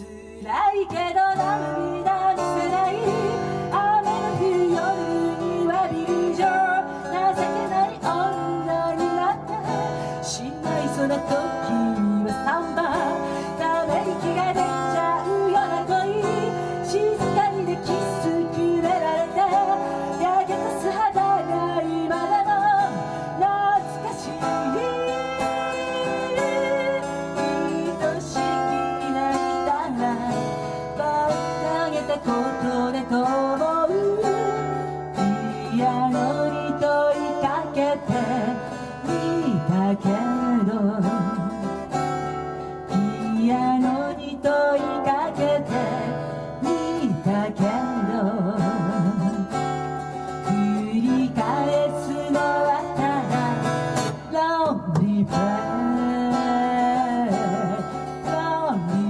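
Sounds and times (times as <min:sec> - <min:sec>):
acoustic guitar strummed and plucked: 0:00.0 - 0:59.0
woman singing into a microphone: 0:00.0 - 0:59.0.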